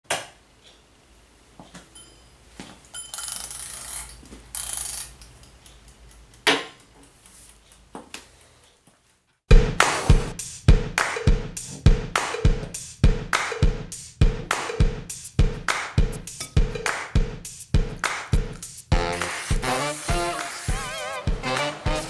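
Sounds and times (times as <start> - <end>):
music with heavy drum beat: 9.5 - 22.0.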